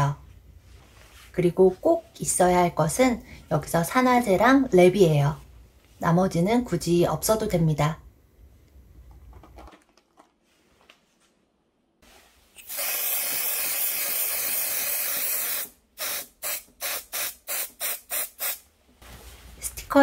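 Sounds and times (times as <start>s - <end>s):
aerosol spray hissing: 12.6s - 18.6s.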